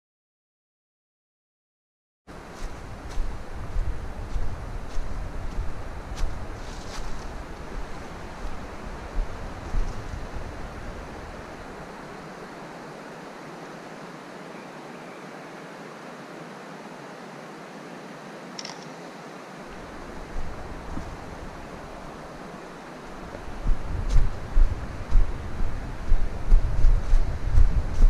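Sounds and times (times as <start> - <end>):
rushing outdoor hiss: 2.3 - 28.0
wind buffeting microphone: 2.4 - 12.2, 19.7 - 28.0.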